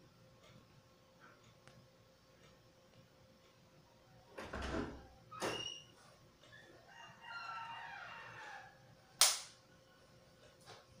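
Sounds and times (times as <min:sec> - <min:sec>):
rooster crowing: 0:06.5 - 0:09.2.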